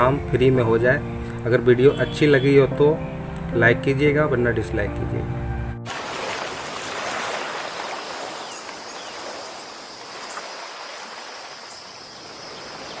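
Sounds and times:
ocean surf rushing: 5.9 - 13.0.

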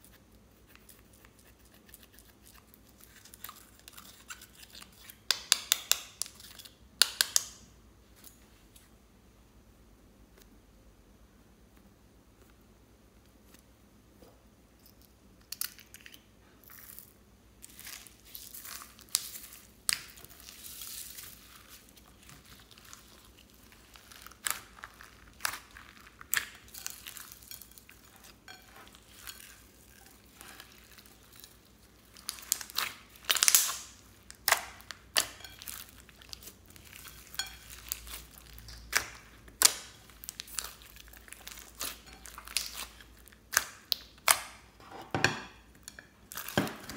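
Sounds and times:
slime crunching and popping: 17.6 - 44.7.

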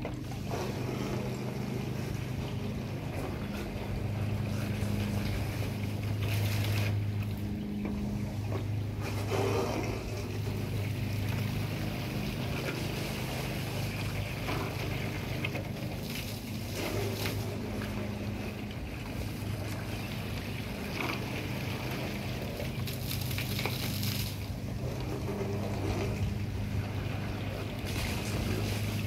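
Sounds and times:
low mechanical hum: 0.0 - 29.0
water rushing through gutter: 0.0 - 29.0.

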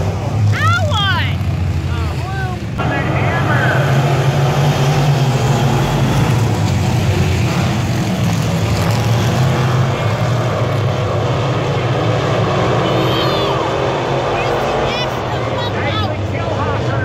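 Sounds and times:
stock car engines racing: 0.0 - 17.0.

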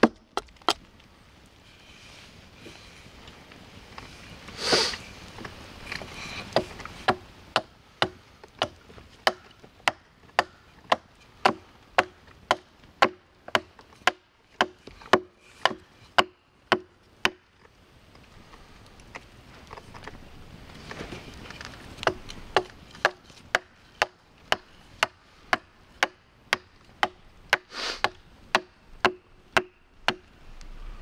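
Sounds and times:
hatchet chopping wood: 0.0 - 0.8, 6.5 - 17.6, 22.0 - 30.3.

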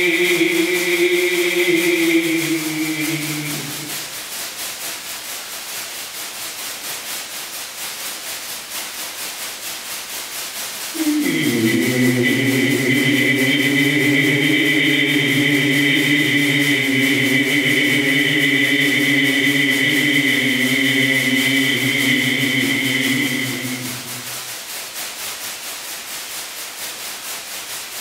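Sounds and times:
chant-like low drone: 0.0 - 4.2, 11.0 - 24.5
rustling hiss with fast pulse: 0.0 - 28.0.

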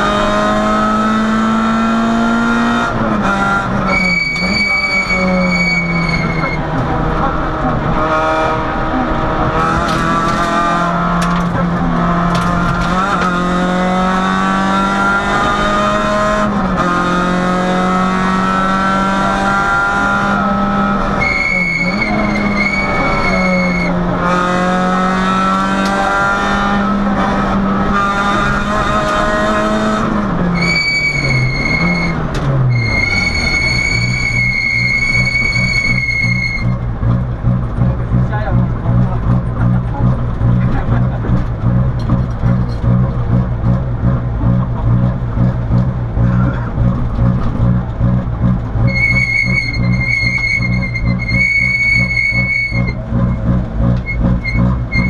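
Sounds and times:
rally car engine accelerating: 0.0 - 55.0
high steady squeal: 3.9 - 6.6, 21.2 - 24.0, 30.6 - 36.8, 48.8 - 53.4.

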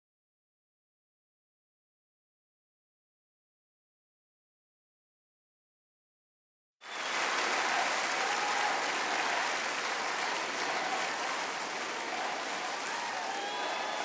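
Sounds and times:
audience clapping: 6.8 - 14.0
voices calling out: 8.2 - 14.0.

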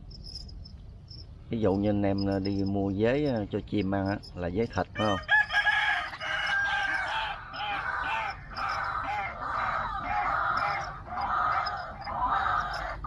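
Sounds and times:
chickens clucking and crowing: 4.0 - 13.0.

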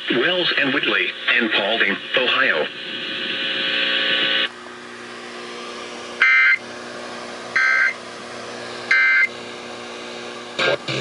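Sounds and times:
low steady radio hum: 0.0 - 11.0.

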